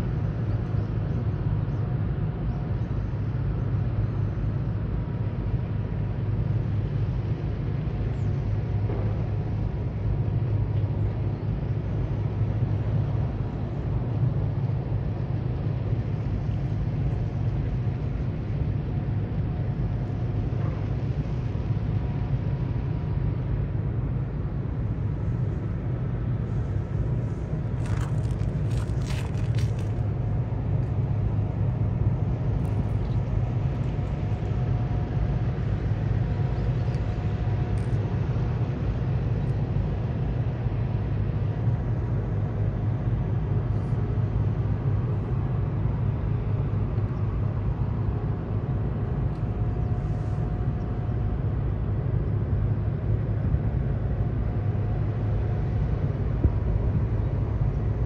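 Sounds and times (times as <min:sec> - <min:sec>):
ferry engines rumbling: 0:08.4 - 0:58.0
faint crackles: 0:26.6 - 0:30.1.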